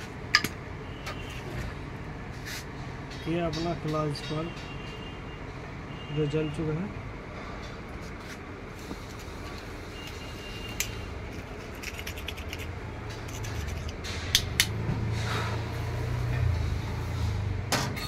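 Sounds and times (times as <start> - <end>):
hand tool clicking and scraping metal: 10.8 - 14.7.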